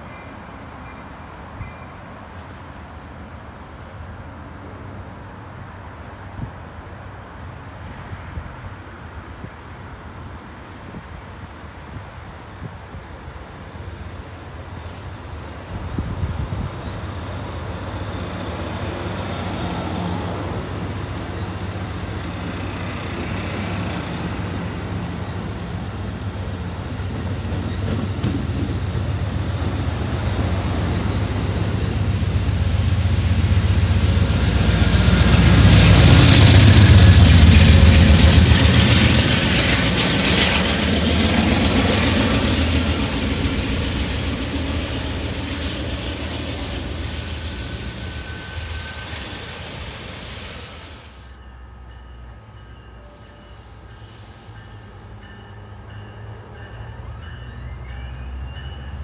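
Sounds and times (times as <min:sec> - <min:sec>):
train cars rolling on rails: 0:00.0 - 0:59.0
diesel locomotive engine working: 0:12.9 - 0:59.0.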